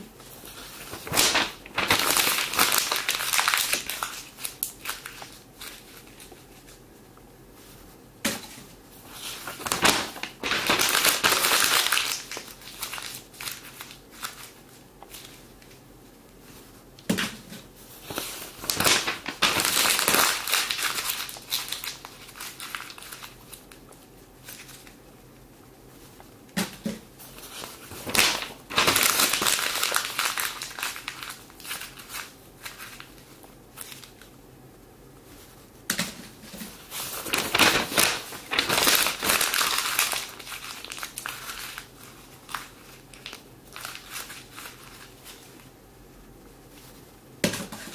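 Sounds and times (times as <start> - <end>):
paper crumpling and rustling: 0.2 - 6.8, 8.6 - 15.8, 17.9 - 25.0, 27.2 - 34.3, 36.3 - 45.7.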